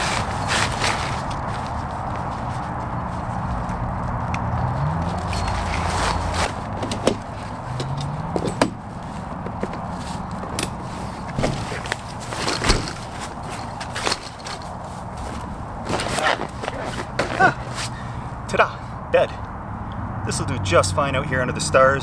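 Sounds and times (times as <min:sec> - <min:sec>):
fabric and dry grass rustling: 0:00.0 - 0:18.3
metal poles knocking and clicking: 0:04.3 - 0:08.8.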